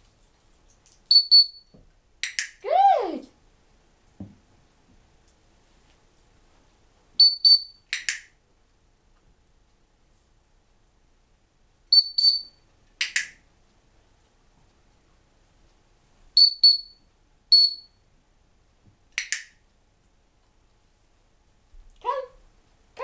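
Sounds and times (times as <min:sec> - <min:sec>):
whistle high pips: 0:12.0 - 0:12.6, 0:16.4 - 0:17.0, 0:17.6 - 0:18.0.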